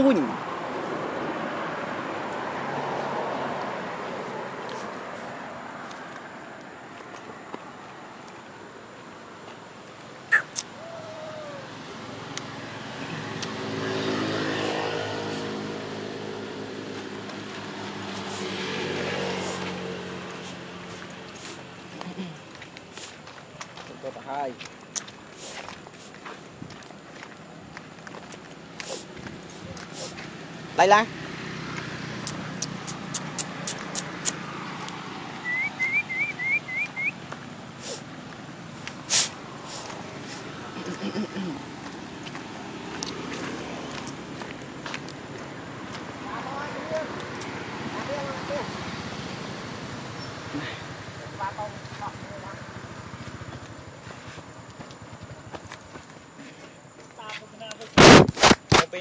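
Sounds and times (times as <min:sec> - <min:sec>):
sharp clicks: 0:32.2 - 0:35.0
short rising whistled notes: 0:35.4 - 0:37.2
vehicle engine running: 0:47.9 - 0:56.4.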